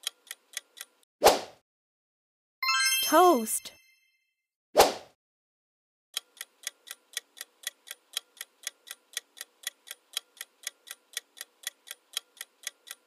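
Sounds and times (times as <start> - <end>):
clock-like timer ticking: 0.0 - 1.1, 6.2 - 13.0.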